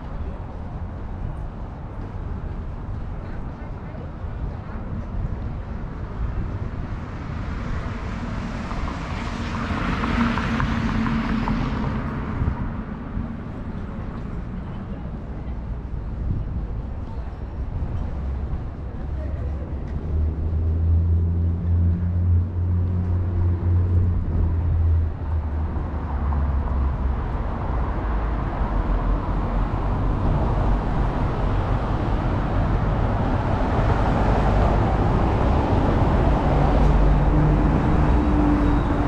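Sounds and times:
passing traffic: 0.0s - 39.0s
heavy vehicle engine humming: 7.8s - 39.0s.

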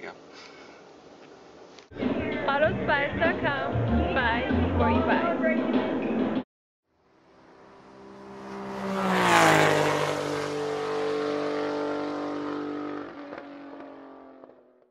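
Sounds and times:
engine fly-by swoosh: 7.1s - 14.5s.

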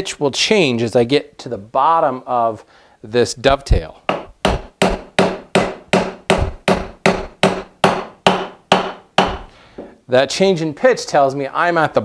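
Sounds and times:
mallet striking chisel: 4.1s - 9.5s.

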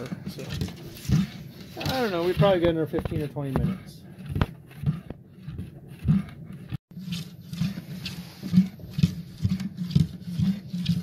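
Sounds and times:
thick mush stirred in a kettle: 0.0s - 11.0s.

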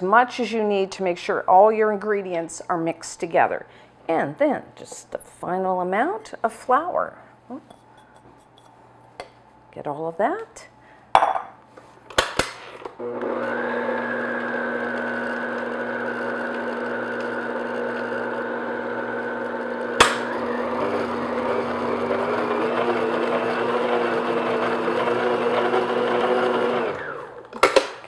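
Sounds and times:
stand mixer motor running: 13.0s - 27.4s.

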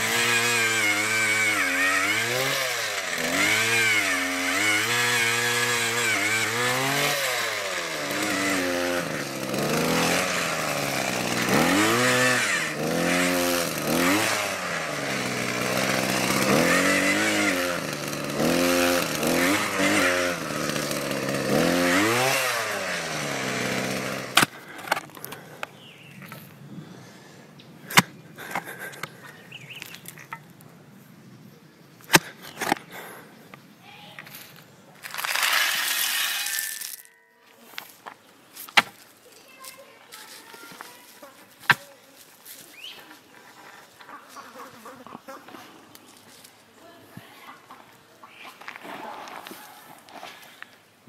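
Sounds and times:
auger engine revving: 0.0s - 25.0s.

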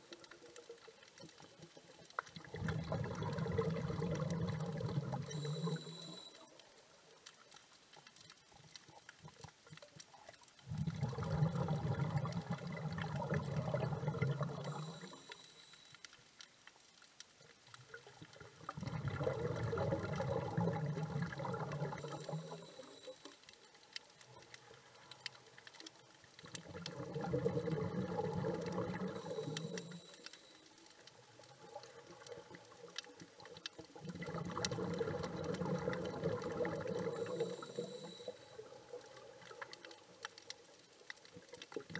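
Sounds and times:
faint crackling clicks: 0.0s - 41.9s
bubbles of diver exhaling: 2.4s - 5.4s, 10.7s - 14.8s, 18.7s - 22.4s, 26.6s - 29.6s, 34.0s - 38.0s
regulator hiss on inhaling: 5.3s - 6.4s, 14.6s - 16.0s, 22.0s - 23.4s, 29.2s - 30.6s, 37.1s - 38.6s.

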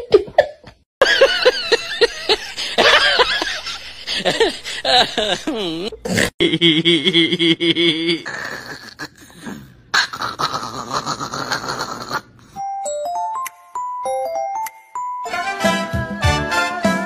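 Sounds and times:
person laughing: 1.0s - 9.4s, 10.0s - 12.3s
tinkling bell-like tune: 12.6s - 15.4s.

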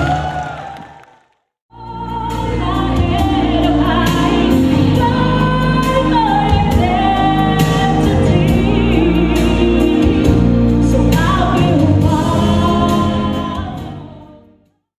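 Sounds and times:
musical accompaniment: 1.7s - 14.8s
person singing: 1.7s - 14.8s.

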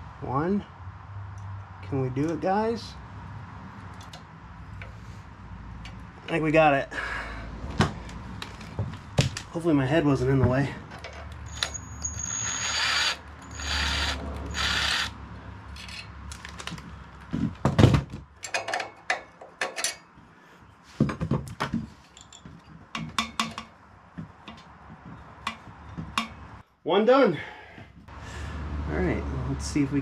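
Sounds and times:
metal clicks and knocks: 18.4s - 20.0s, 21.4s - 26.4s.

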